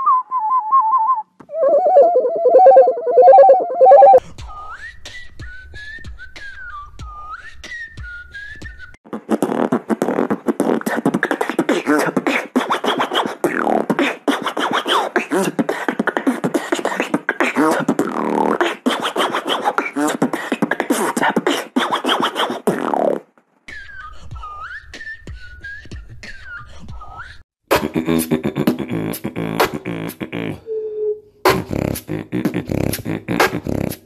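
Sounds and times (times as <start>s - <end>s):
person whistling a tune: 0.0s - 9.0s, 23.7s - 27.4s
beatbox vocal scratching: 4.2s - 7.8s, 8.7s - 30.7s, 31.4s - 34.0s.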